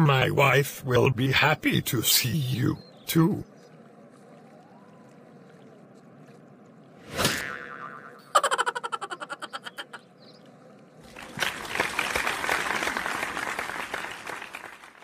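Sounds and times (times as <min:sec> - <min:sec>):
applause: 0:11.0 - 0:15.0.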